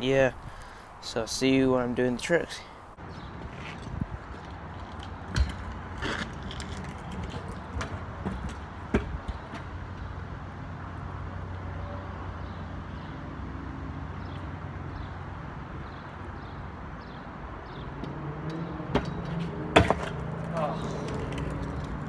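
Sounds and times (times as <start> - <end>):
scooter knocking on asphalt: 3.1 - 9.7.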